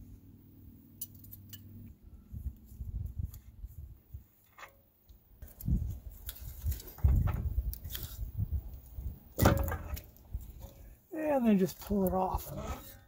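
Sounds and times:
dull thump: 9.4 - 10.0.

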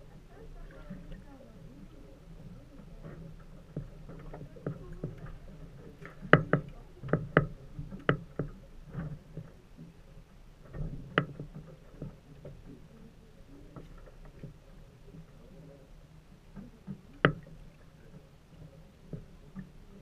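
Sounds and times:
water lapping against boat hull: 0.0 - 20.0
knocks on metal boat: 6.2 - 8.6.

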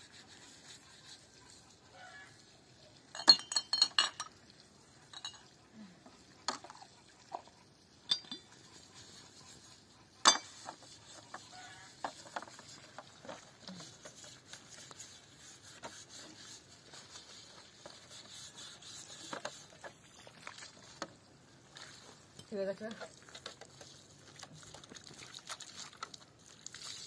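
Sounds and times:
objects clinking and knocking: 3.1 - 4.4, 5.1 - 5.5, 8.0 - 8.5, 10.2 - 10.8.

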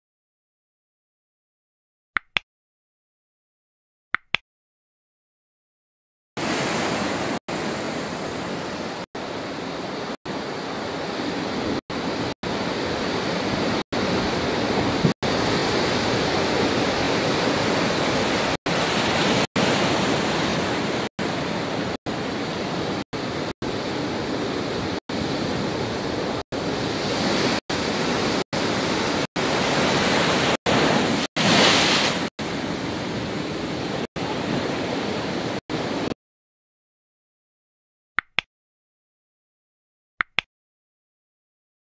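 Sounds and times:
waves breaking against a pier: 6.4 - 36.2.

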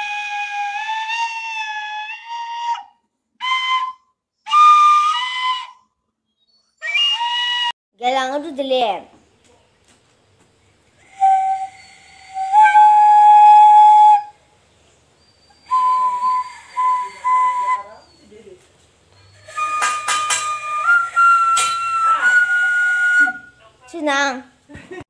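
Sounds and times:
bamboo flute playing: 0.0 - 5.9, 6.8 - 7.8, 11.0 - 14.4, 15.4 - 18.3, 19.1 - 23.6.

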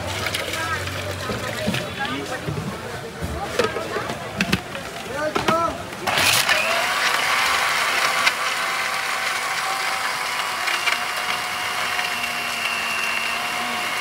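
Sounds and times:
electric blender running: 6.0 - 14.0.

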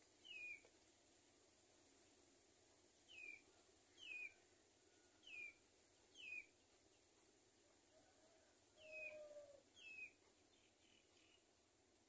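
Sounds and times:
faint outdoor background: 0.0 - 12.0
bird chirping: 0.2 - 0.7, 3.0 - 4.4, 5.2 - 7.2, 8.8 - 11.6.

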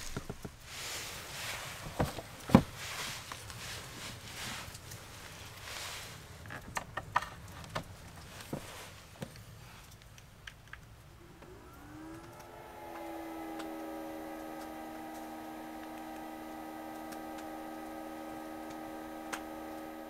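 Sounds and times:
projector cooling fan hum: 9.9 - 20.0.

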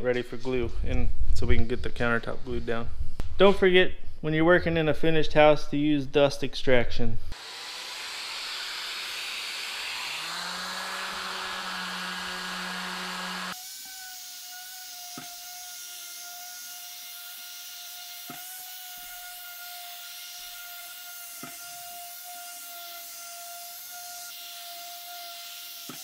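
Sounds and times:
vacuum hiss: 7.4 - 13.6
orbital sander whine: 7.4 - 26.0.

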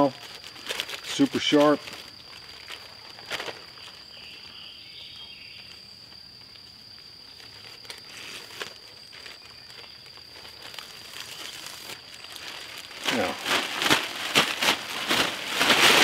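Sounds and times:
plastic bag crinkling: 0.0 - 4.1, 7.3 - 16.0
insect drone: 0.0 - 16.0.

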